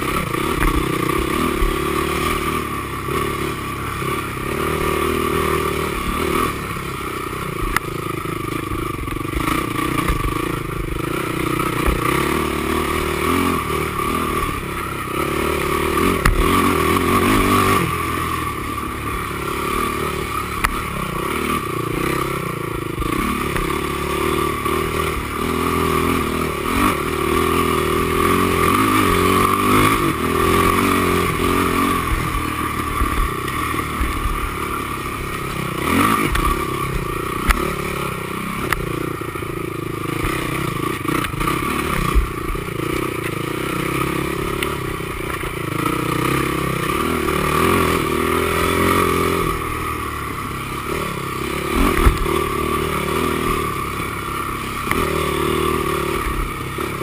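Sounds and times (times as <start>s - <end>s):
quad engine revving: 0.0s - 57.0s.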